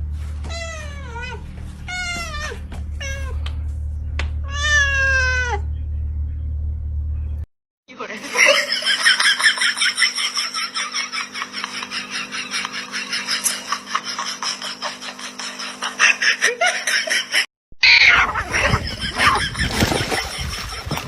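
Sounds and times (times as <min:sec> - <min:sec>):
steady low hum: 0:00.0 - 0:07.5
rapid rhythmic laughter: 0:08.2 - 0:17.5, 0:18.4 - 0:21.0.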